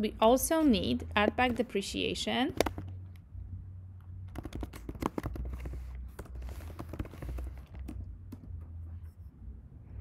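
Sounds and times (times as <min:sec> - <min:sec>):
low steady hum: 0:00.0 - 0:10.0
keyboard keystrokes clicking: 0:04.3 - 0:08.4.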